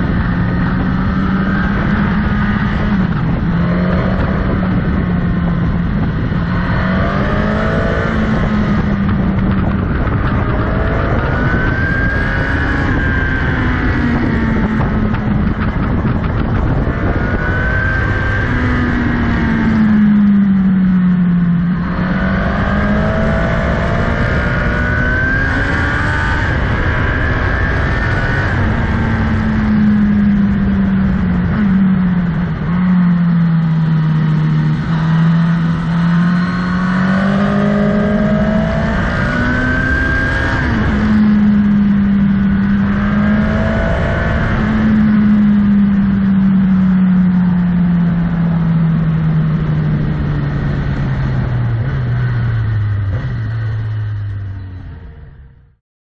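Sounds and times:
wind noise: 0:00.0 - 0:55.5
motorcycle engine revving: 0:00.0 - 0:55.8.

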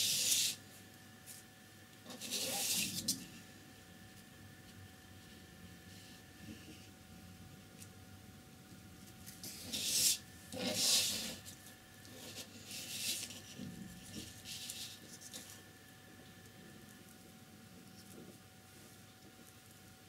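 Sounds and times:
paper rubbing on table: 0:00.0 - 0:00.6, 0:02.1 - 0:03.3, 0:09.3 - 0:15.5
paper scraping: 0:02.1 - 0:03.3, 0:09.2 - 0:15.6.

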